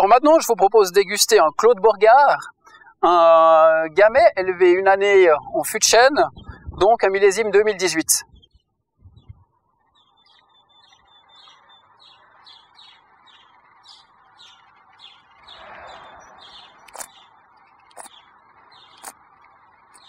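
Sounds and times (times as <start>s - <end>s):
small bird chirping: 8.2s - 20.0s
sharp clicks: 16.6s - 17.2s, 17.8s - 20.0s.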